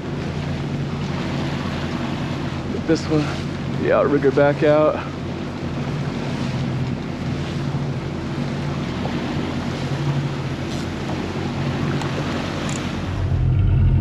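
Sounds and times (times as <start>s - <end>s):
boat engine running: 0.0s - 14.0s
wake rushing along hull: 0.0s - 14.0s
wind on microphone: 8.8s - 14.0s.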